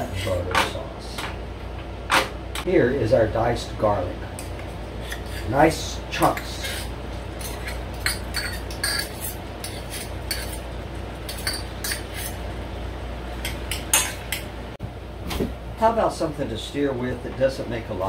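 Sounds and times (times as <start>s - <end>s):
metal knife clinking and scraping: 5.0s - 5.6s, 6.2s - 12.4s.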